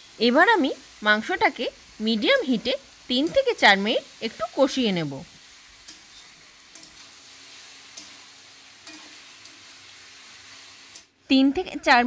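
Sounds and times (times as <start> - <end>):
meat sizzling in oil: 0.0 - 11.2
utensil scraping a pan: 5.9 - 9.6.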